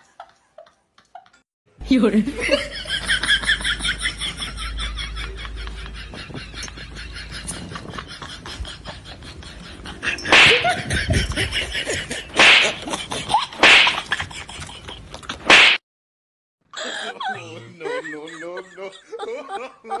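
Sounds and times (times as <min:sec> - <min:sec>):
loud sharp hits: 0:12.4 - 0:12.8.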